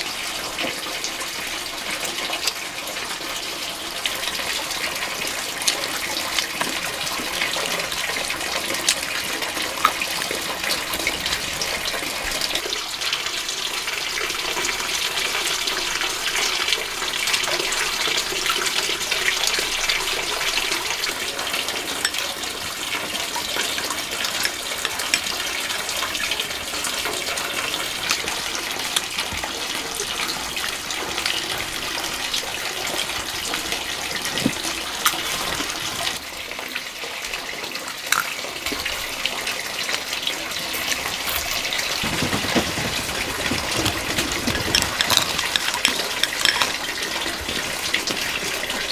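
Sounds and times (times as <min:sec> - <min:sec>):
running water rushing: 0:00.0 - 0:48.9.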